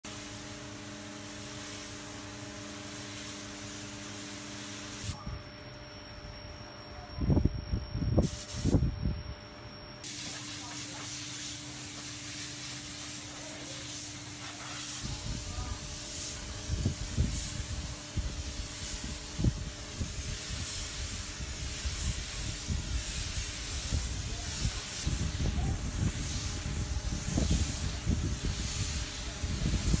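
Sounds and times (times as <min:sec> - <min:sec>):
spray gun hissing: 0:00.0 - 0:05.2, 0:08.2 - 0:08.8, 0:10.0 - 0:30.0
wind buffeting microphone: 0:23.9 - 0:30.0.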